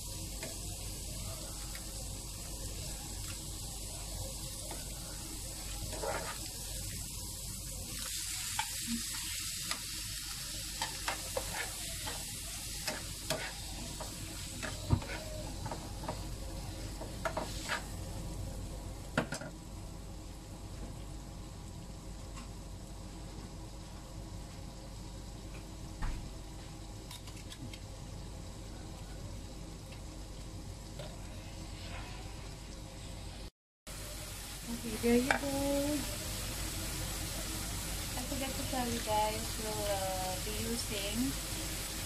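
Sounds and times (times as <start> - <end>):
onions and chicken sizzling in pan: 0.0 - 42.0
spoon scraping and tapping pan: 17.0 - 17.9.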